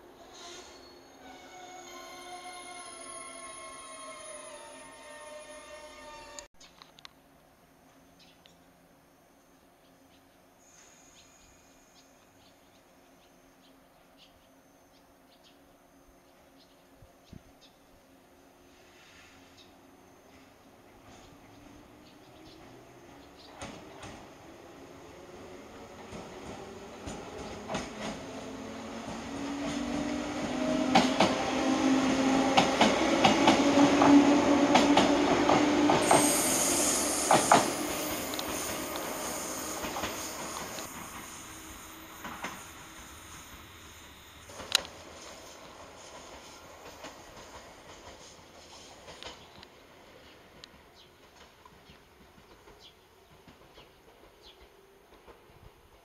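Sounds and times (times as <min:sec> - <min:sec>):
faint bird chirps: 0:09.4 - 0:17.9.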